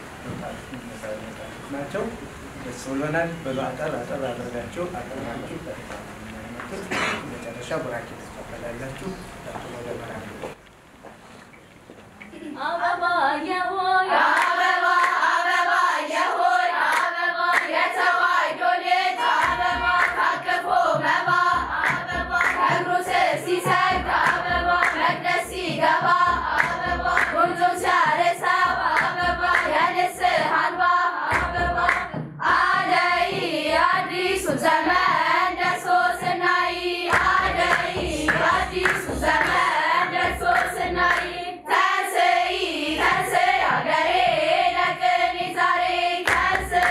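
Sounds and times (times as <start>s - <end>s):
girls' choir singing a hymn: 12.3s - 46.9s
rhythmic hand clapping: 14.1s - 46.9s
low drum beat: 20.7s - 29.8s, 37.1s - 41.2s.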